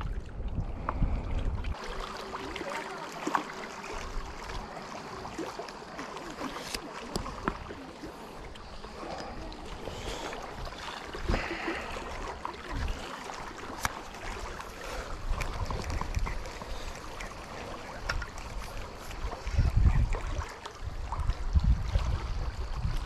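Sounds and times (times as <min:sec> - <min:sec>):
wind on microphone: 0:00.0 - 0:01.8, 0:15.1 - 0:16.9, 0:17.9 - 0:23.0
water lapping: 0:00.0 - 0:23.0.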